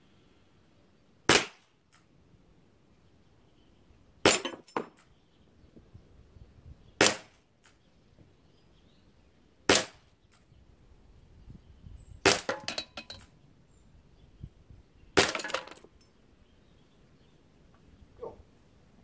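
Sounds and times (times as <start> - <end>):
air revolver shots: 1.3 - 1.6, 7.0 - 7.4, 9.7 - 10.0, 12.2 - 12.6
ceramic shards clattering: 4.3 - 4.9, 12.5 - 13.2.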